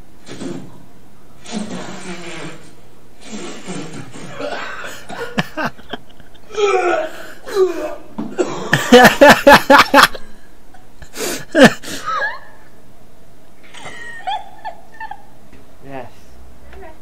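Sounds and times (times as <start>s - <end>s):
laughter: 4.5s - 6.5s, 8.6s - 10.9s, 11.5s - 12.7s, 13.6s - 15.4s.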